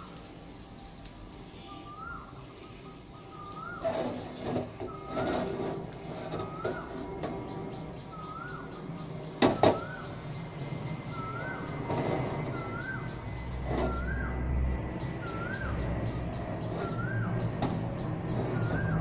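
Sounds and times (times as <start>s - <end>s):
bird calling: 1.5s - 19.0s.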